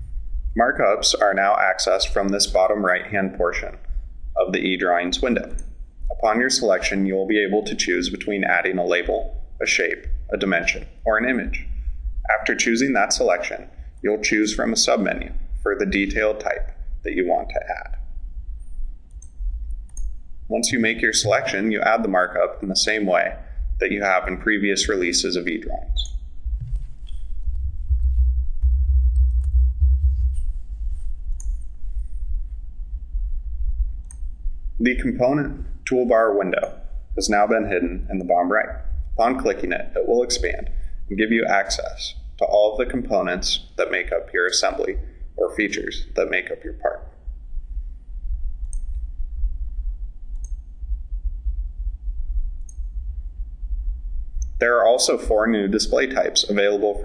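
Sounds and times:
low uneven rumble: 0.0 - 57.0
steady low hum: 0.0 - 57.0
mouse clicking: 19.1 - 20.2, 31.3 - 31.7, 34.0 - 34.3, 48.6 - 49.0, 50.3 - 50.7, 52.6 - 52.9
computer mouse clicking: 31.3 - 31.7, 48.6 - 49.0.

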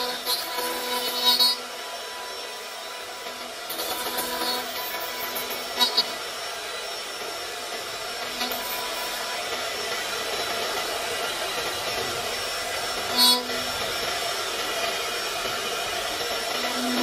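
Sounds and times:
router spindle milling wood: 0.0 - 17.0
thin high tone: 16.6 - 17.0.

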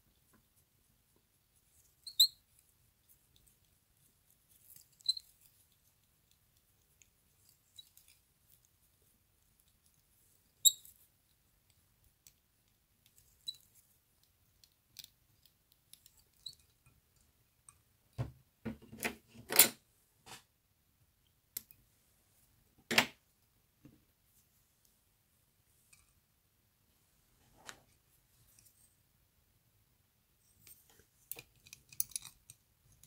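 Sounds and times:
small tools clicking and tapping: 30.6 - 33.0.

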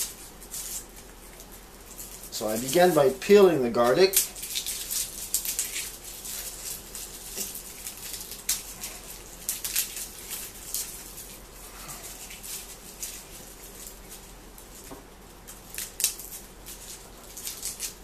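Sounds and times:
garlic skins crackling: 0.0 - 18.0
small clicks and scratches: 4.2 - 18.0.

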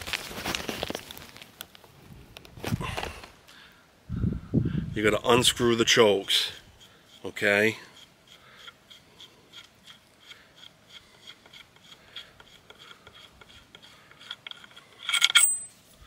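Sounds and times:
metal threads scraping and ticking: 5.0 - 15.8.

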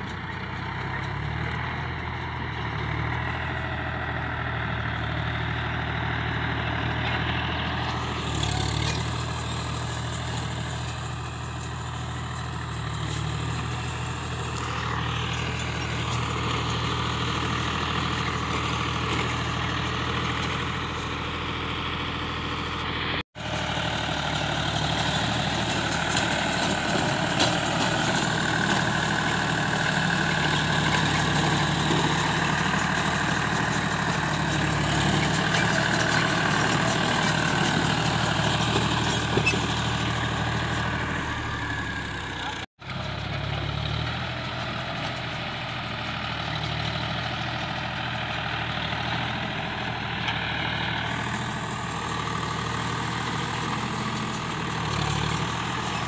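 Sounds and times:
diesel tractor engine under load: 0.0 - 56.0
baler machinery running: 6.8 - 42.6.

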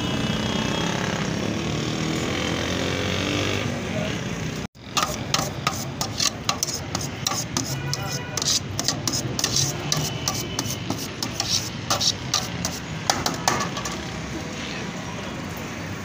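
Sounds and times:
busy street stall din: 0.0 - 16.0
knife scraping on steel tray: 4.8 - 14.2.

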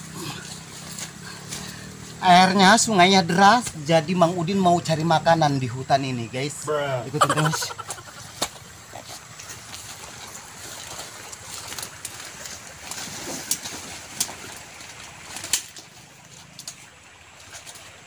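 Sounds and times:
leaves and stems rustling: 0.0 - 3.0, 7.2 - 18.0
sharp cracks of stems: 8.2 - 8.6, 12.8 - 15.9.

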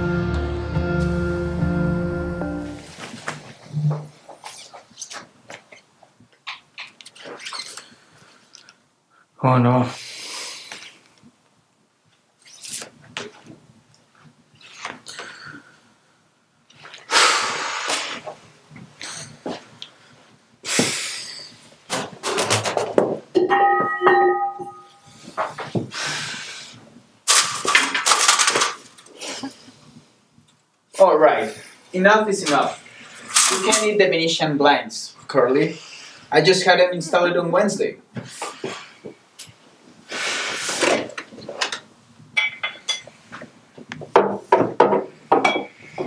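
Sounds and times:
glass bottle and glass clinking: 23.4 - 25.1, 42.4 - 43.1, 44.8 - 45.8.

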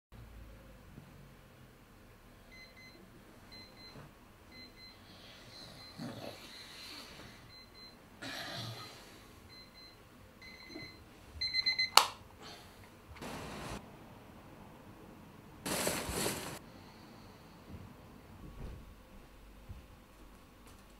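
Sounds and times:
rustling: 15.7 - 16.6.

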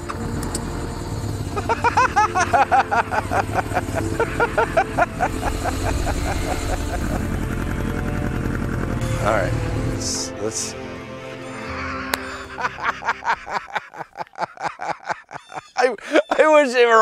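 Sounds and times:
motorcycle engine idling: 0.0 - 10.2
loud high chirping notes: 0.7 - 13.5.

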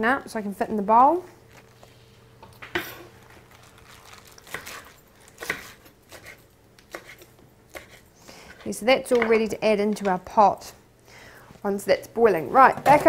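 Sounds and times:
leaves crinkling: 3.1 - 5.4
knife chopping on wooden board: 4.5 - 8.0.

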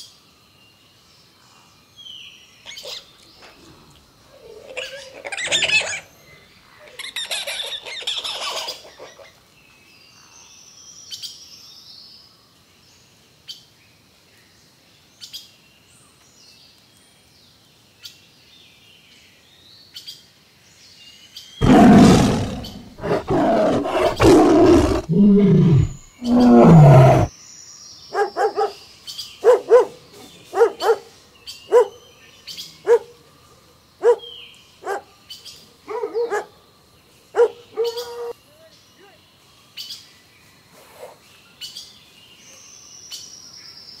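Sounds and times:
faint bird chirping: 18.5 - 44.0
tiger snarling and roaring: 21.6 - 27.3
dog barking: 28.2 - 28.8, 29.4 - 31.1, 31.7 - 32.0, 32.8 - 33.1, 34.0 - 35.1, 35.9 - 36.5, 37.4 - 38.3.

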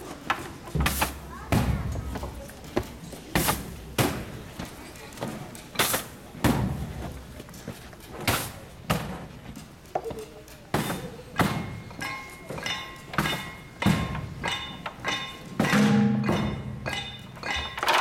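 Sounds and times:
drumming on plastic barrels: 10.7 - 18.0.

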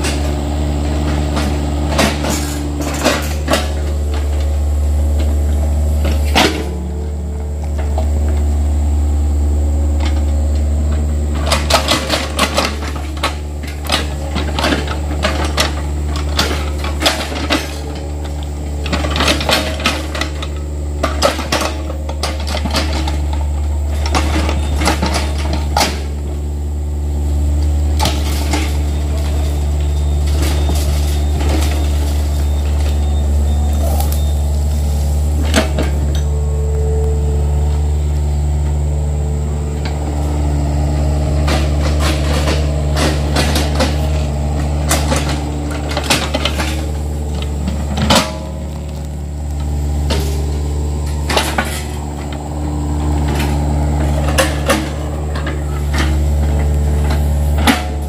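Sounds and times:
excavator diesel engine running: 0.0 - 58.0
metallic clanks from excavator bucket: 11.3 - 26.4, 39.9 - 58.0.

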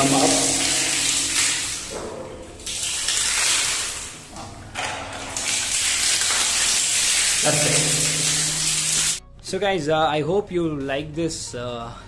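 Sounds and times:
water spraying and splashing: 0.0 - 9.2.

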